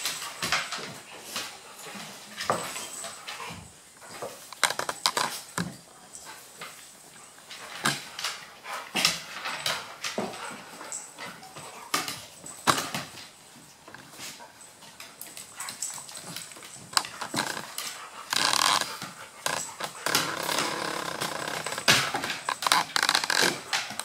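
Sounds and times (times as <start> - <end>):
paws clicking on wooden floor: 0.0 - 24.0
dog sounds: 15.4 - 24.0.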